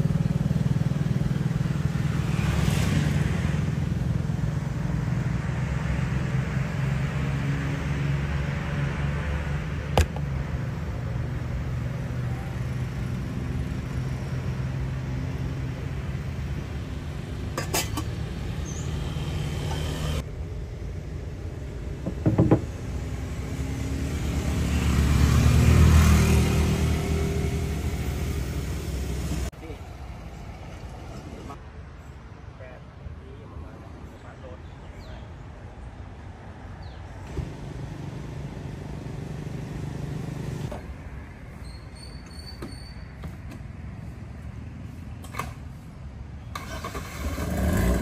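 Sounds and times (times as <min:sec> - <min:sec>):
vehicle passing: 0:00.0 - 0:22.0, 0:22.7 - 0:31.6, 0:36.3 - 0:41.6
low hum of vehicle engines: 0:00.0 - 0:48.0.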